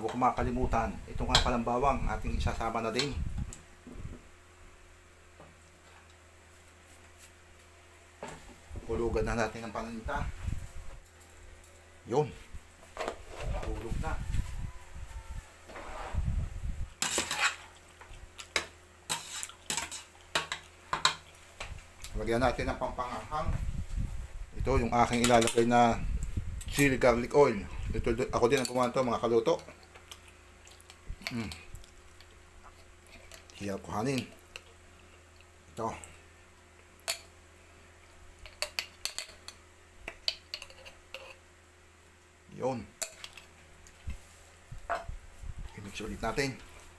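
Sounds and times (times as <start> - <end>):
metal spoon scraping a pot: 17.0 - 17.8, 19.1 - 21.2, 38.4 - 41.4.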